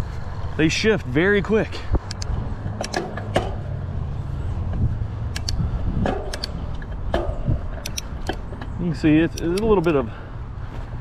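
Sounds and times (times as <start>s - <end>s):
low rumble of riding: 0.0s - 11.0s
bike gear shifting clicks: 5.3s - 8.5s.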